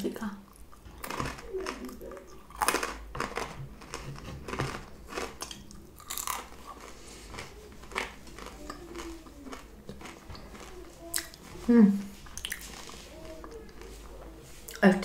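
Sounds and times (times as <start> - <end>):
crunchy chewing: 0.5 - 14.8
wet mouth sounds: 5.2 - 14.0.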